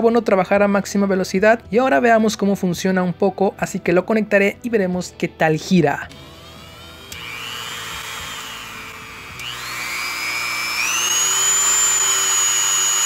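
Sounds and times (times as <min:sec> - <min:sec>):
rotary tool high whine: 0:06.1 - 0:13.0.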